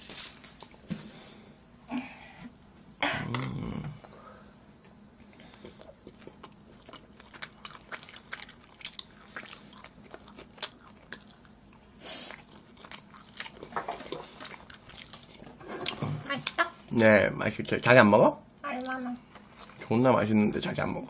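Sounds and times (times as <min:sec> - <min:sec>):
person chewing food: 0:05.1 - 0:16.8, 0:18.8 - 0:19.9.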